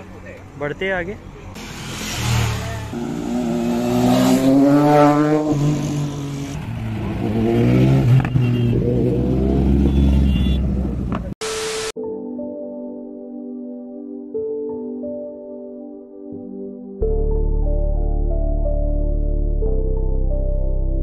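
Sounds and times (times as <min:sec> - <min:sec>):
road and wind noise: 0:00.0 - 0:12.0
motorcycle engine accelerating: 0:01.6 - 0:11.3
soft ambient music: 0:12.0 - 0:21.0.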